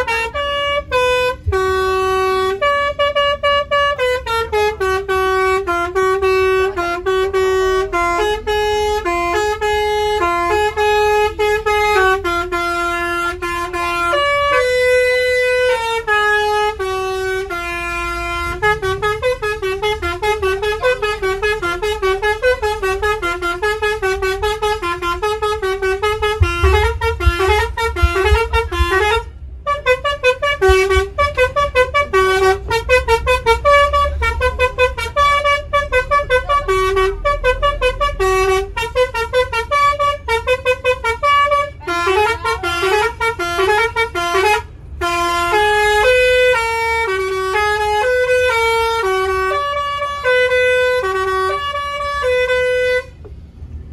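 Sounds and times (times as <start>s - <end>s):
musical bus horn melody: 0.0s - 53.6s
low rumble: 24.0s - 38.0s.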